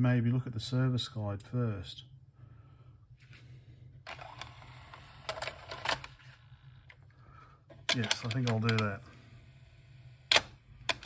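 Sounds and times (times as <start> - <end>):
low steady hum: 0.0 - 11.0
light clicks and knocks of tape deck: 7.7 - 9.0.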